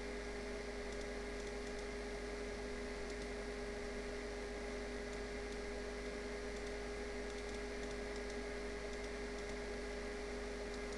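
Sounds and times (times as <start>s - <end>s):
electrical hum with hiss: 0.0s - 10.9s
faint ticks: 3.0s - 3.4s, 6.5s - 9.6s, 10.7s - 10.9s.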